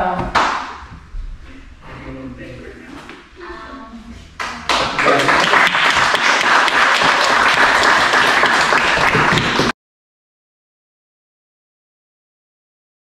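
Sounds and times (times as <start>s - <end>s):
crowd applauding: 4.4s - 9.8s.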